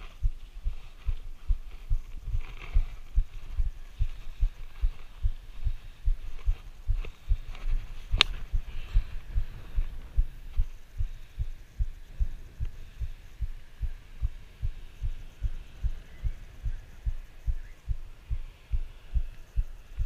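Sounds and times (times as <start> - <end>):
footsteps on dirt track: 0.0 - 11.2.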